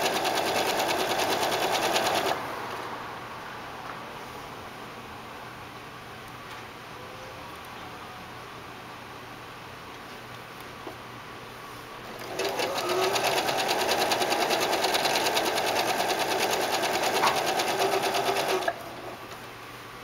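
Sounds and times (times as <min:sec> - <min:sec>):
sewing machine stitching: 0:00.0 - 0:02.4, 0:12.1 - 0:18.8.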